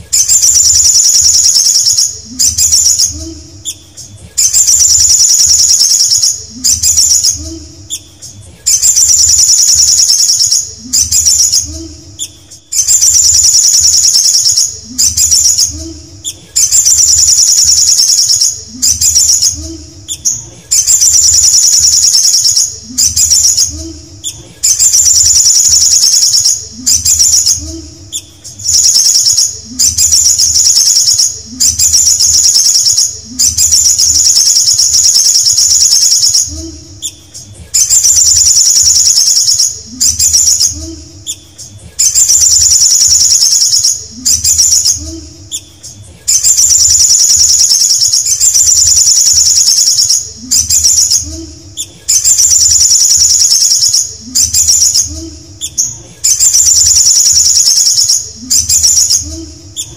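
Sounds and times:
sunbird singing trilled phrases: 0.2 - 51.4, 52.1 - 59.9.

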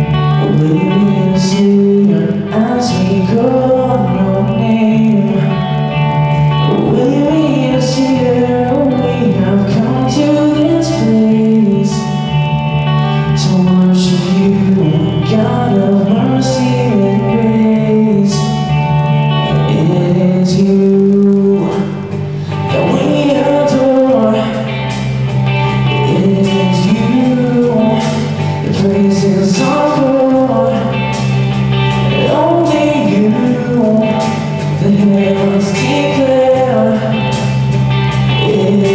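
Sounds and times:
man singing into microphone: 0.0 - 12.4, 13.0 - 38.9
electric and acoustic guitars: 0.0 - 38.9
drum kit: 18.3 - 38.9.

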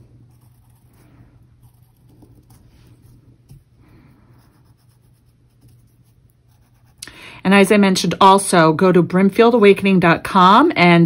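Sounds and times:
pencil scratching on fabric: 0.0 - 3.2, 4.3 - 7.0
low steady hum: 0.0 - 11.0.

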